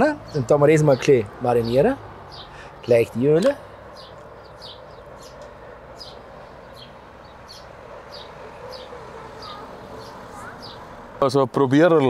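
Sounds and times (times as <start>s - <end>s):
small bird chirping: 0.3s - 2.6s, 3.9s - 11.0s.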